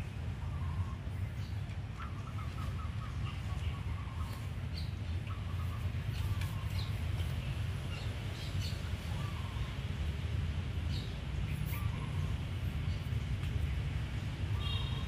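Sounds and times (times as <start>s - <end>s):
faint bird chirps: 14.5s - 15.0s.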